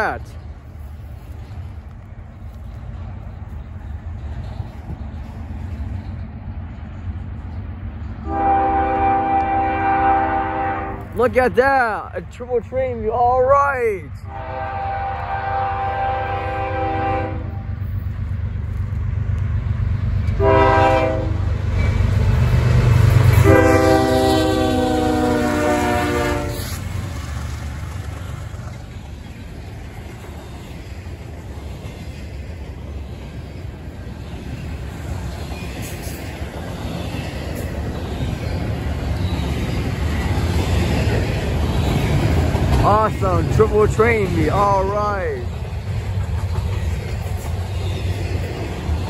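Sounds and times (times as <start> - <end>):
train passing rumble: 0.0 - 49.0
locomotive horn blasts: 8.2 - 11.1, 14.3 - 17.6, 20.4 - 21.4, 23.4 - 26.7.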